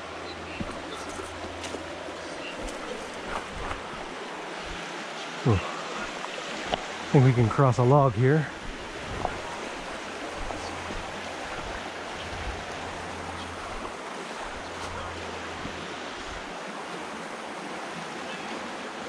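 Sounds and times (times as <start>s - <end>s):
creek rushing over rocks: 0.0s - 19.0s.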